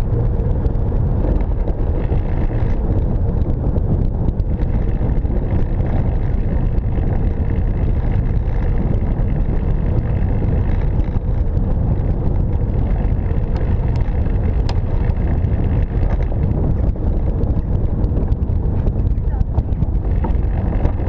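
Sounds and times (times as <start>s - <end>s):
vehicle rolling on paved road: 0.0s - 21.0s
wind buffeting microphone: 0.0s - 21.0s.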